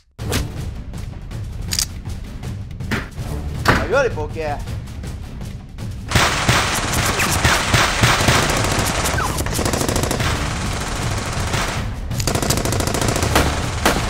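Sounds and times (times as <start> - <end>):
automatic gunfire: 6.1 - 14.0.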